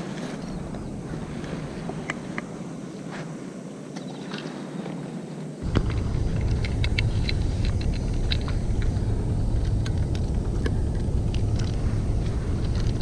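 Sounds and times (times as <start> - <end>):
low rumble: 5.6 - 13.0.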